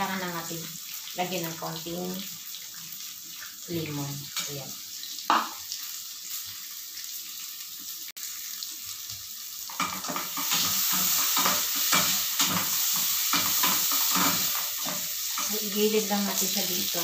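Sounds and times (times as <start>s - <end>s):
pepper sizzling in butter: 0.0s - 17.0s
spatula scraping a pan: 9.7s - 16.5s.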